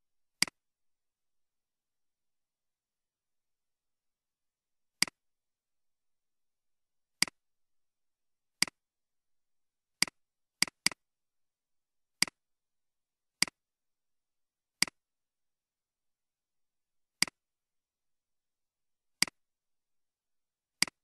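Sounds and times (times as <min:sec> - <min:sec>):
computer mouse clicks: 0:10.0 - 0:11.0, 0:13.4 - 0:13.6, 0:14.8 - 0:15.0, 0:17.2 - 0:17.4, 0:19.2 - 0:19.4, 0:20.8 - 0:21.0.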